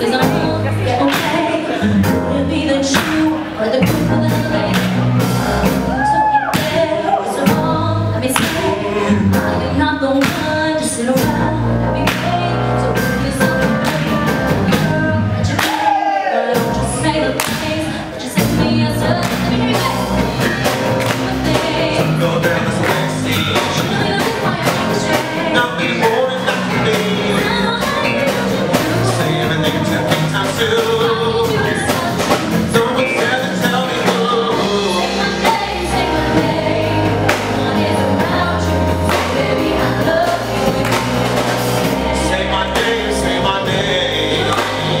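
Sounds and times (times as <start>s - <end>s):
woman singing into a microphone: 0.0s - 5.1s, 6.1s - 20.3s, 21.1s - 22.3s, 23.0s - 25.7s, 27.2s - 29.1s, 31.1s - 41.3s
electric bass: 0.0s - 15.9s, 16.6s - 45.0s
drums: 0.0s - 45.0s
keyboard: 0.0s - 45.0s.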